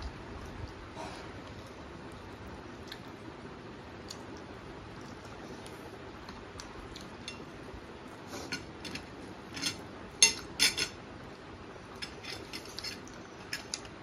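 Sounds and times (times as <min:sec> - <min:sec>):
chewing: 0:00.4 - 0:03.2
cutlery clinking on plates: 0:08.5 - 0:11.0.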